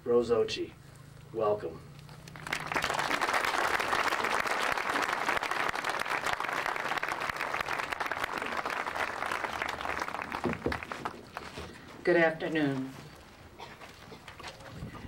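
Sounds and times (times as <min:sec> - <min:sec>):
audience applauding: 0:02.1 - 0:11.6.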